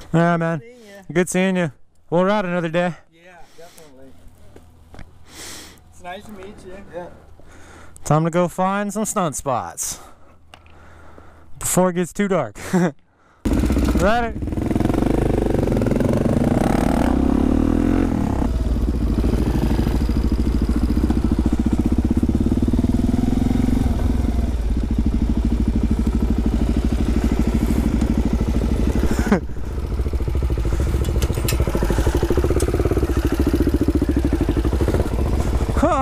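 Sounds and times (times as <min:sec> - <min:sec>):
motorcycle engine: 0:13.4 - 0:36.0.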